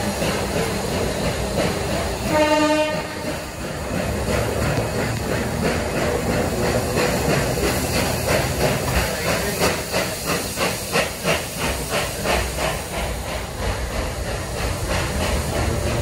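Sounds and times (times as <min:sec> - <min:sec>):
steam hissing: 0:00.0 - 0:16.0
steam locomotive exhaust beats: 0:00.0 - 0:16.0.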